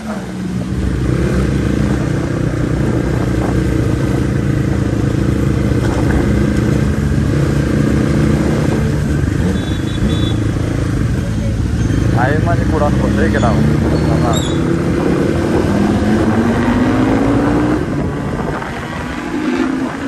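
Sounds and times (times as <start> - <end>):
motorcycle engine running: 0.0 - 13.5.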